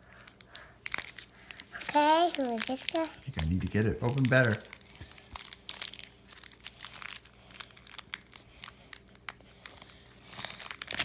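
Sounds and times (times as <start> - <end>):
wrapper crumpling and tearing: 0.1 - 11.0.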